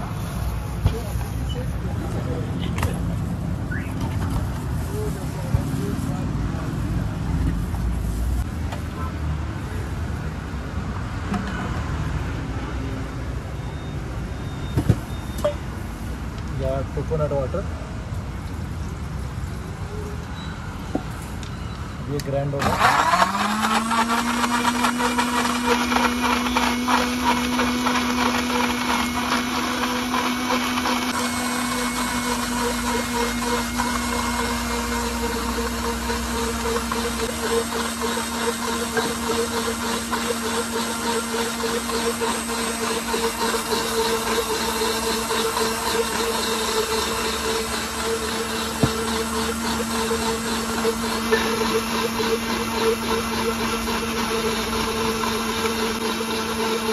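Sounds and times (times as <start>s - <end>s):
mixer grinder motor humming: 22.6s - 56.9s.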